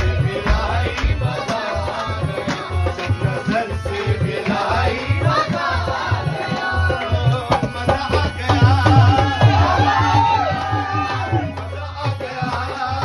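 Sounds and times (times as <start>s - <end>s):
folk singing: 0.0s - 13.0s
hand drum beating: 6.3s - 11.6s.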